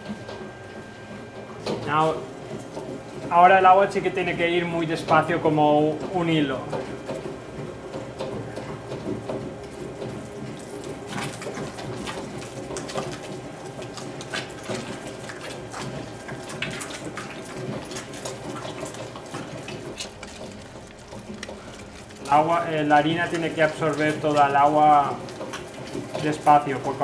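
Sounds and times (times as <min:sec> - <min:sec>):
dough mixer humming: 0:00.0 - 0:27.0
wet dough clicks and splashes: 0:06.6 - 0:27.0.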